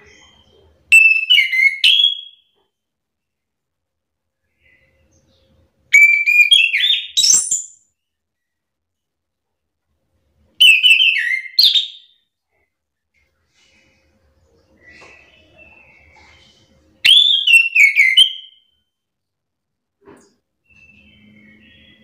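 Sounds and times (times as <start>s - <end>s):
thrush singing whistled notes: 6.0s - 7.8s, 10.6s - 12.2s, 17.0s - 18.8s, 20.7s - 22.0s.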